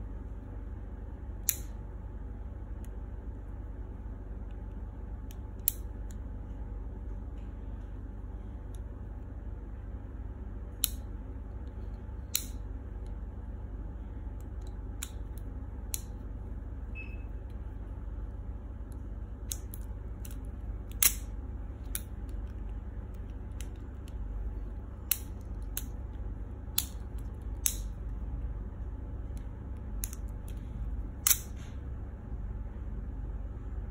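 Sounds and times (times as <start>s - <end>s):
low steady hum: 0.0s - 33.9s
multitool clicking open and shut: 1.4s - 1.8s, 5.3s - 6.2s, 10.8s - 11.0s, 12.2s - 12.6s, 18.9s - 22.6s, 25.1s - 26.0s, 26.8s - 28.0s, 30.0s - 30.6s, 31.2s - 31.7s.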